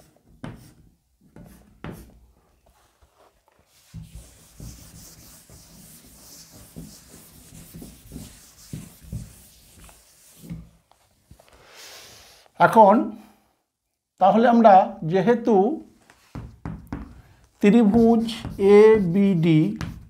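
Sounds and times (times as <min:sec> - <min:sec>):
duster rubbing blackboard: 0:03.7 - 0:10.6, 0:17.9 - 0:20.0.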